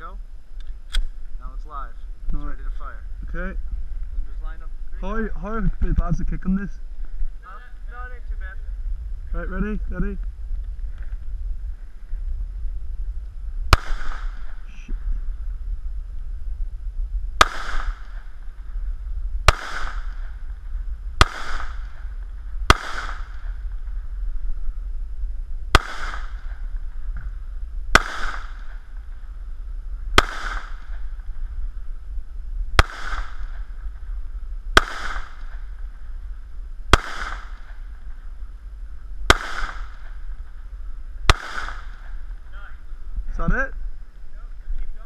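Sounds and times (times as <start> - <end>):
low rumble: 0.0 - 45.0
pistol shots: 13.7 - 14.6, 17.4 - 18.3, 19.5 - 20.4, 21.2 - 22.1, 22.7 - 23.6, 25.7 - 26.6, 27.9 - 28.8, 30.2 - 31.0, 32.8 - 33.6, 34.8 - 35.6, 36.9 - 37.8, 39.3 - 40.1, 41.3 - 42.2.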